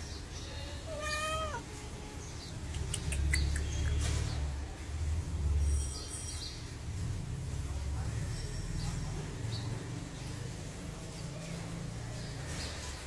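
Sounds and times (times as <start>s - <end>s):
cat meowing: 0.8s - 1.7s.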